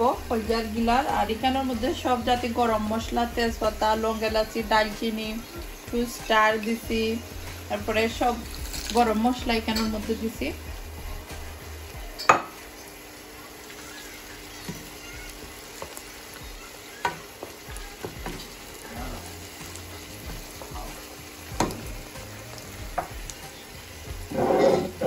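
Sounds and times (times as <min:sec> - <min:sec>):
onions sizzling in oil: 0:00.0 - 0:25.0
spoon knocking against pan: 0:17.0 - 0:18.5.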